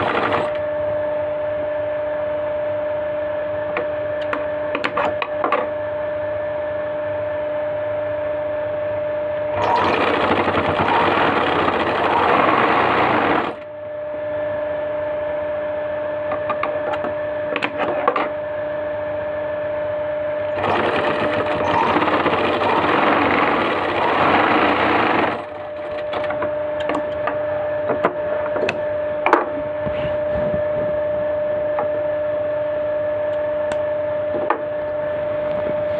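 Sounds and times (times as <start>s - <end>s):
sewing machine stitching: 0.0s - 0.6s, 9.6s - 13.6s, 20.6s - 26.2s
steady hum: 0.0s - 35.9s.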